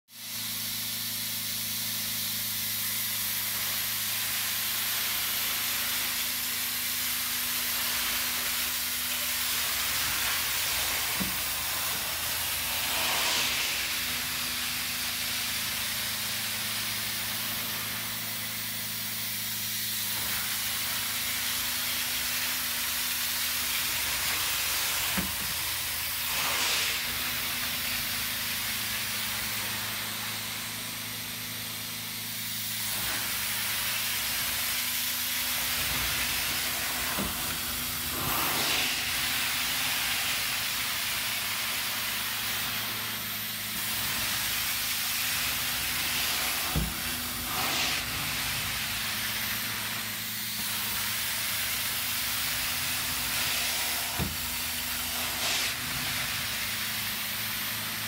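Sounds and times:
vacuum suction and water hiss: 0.2 - 58.0.

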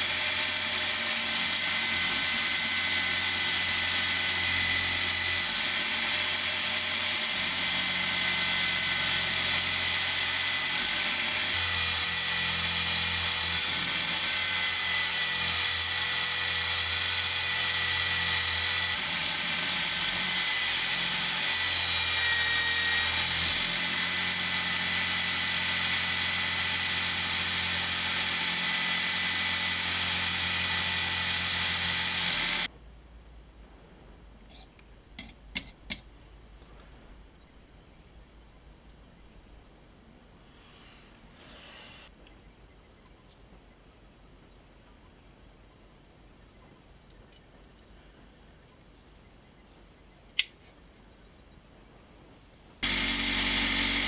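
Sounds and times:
power tool grinding steel: 0.0 - 32.7, 52.8 - 54.0.

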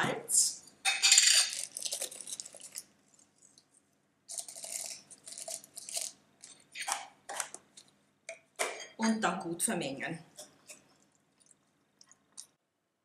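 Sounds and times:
salt grains rustling and crunching: 1.3 - 6.7.

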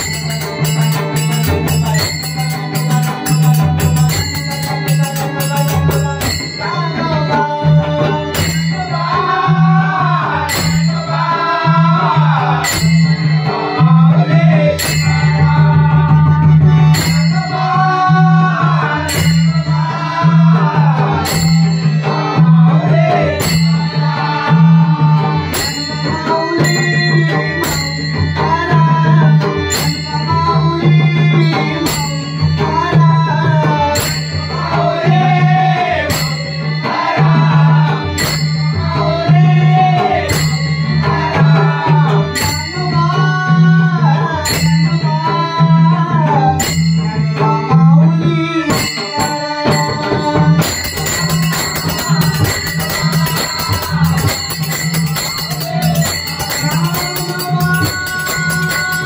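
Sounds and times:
hand cymbals clashing: 0.0 - 7.4, 12.6 - 14.0, 14.8 - 15.9, 17.0 - 17.8, 29.5 - 33.0, 38.1 - 39.4, 46.6 - 47.5, 48.6 - 59.0
hand drum: 0.0 - 59.0
harmonium drone: 0.0 - 59.0
man singing: 0.0 - 59.0.

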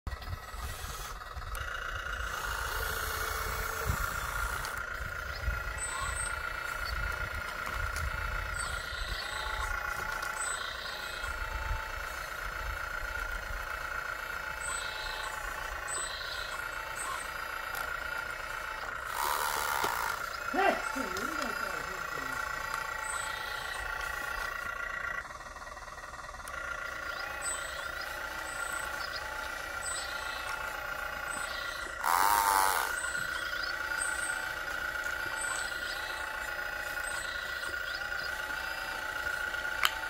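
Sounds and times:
toy excavator motor whining: 0.1 - 40.0.

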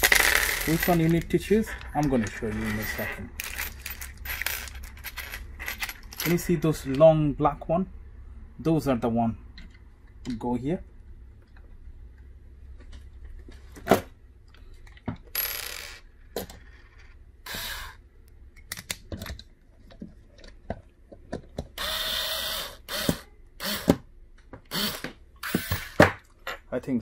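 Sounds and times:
screws clicking and clinking: 0.0 - 6.5
electric screwdriver driving screws: 17.5 - 18.0, 21.8 - 24.0, 24.7 - 26.1.

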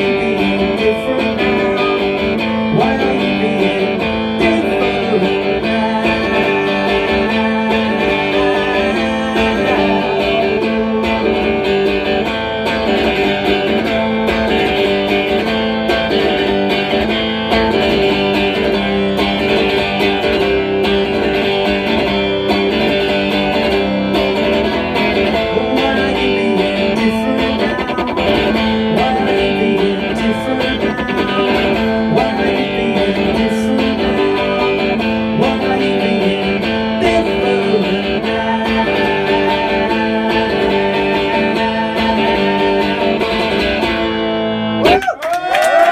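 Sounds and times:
electric guitar strumming: 0.0 - 45.0.

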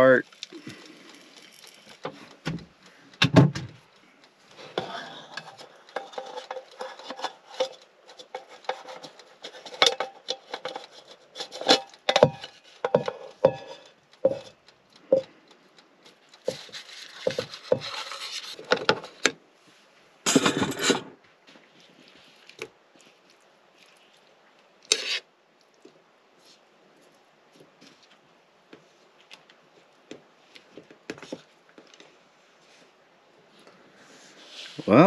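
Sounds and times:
metal tongs clacking and scraping: 4.8 - 15.3
cookware clicks and knocks: 11.5 - 14.4.

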